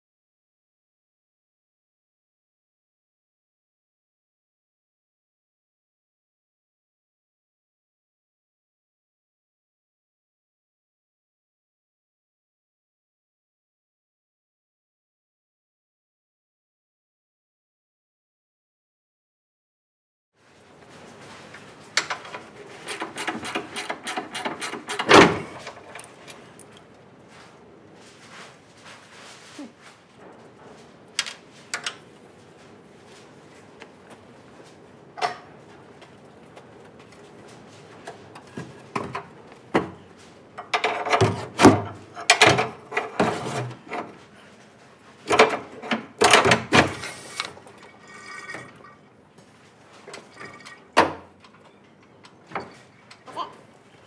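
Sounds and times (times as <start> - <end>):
metal clanking and scraping: 20.9 - 26.7, 40.0 - 53.3.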